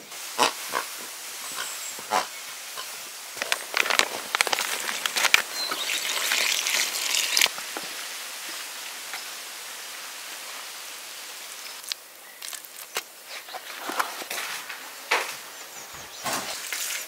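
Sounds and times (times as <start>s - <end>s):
steady hiss: 0.0s - 17.0s
crackly rustling of wet shavings: 3.4s - 7.5s, 11.8s - 14.8s.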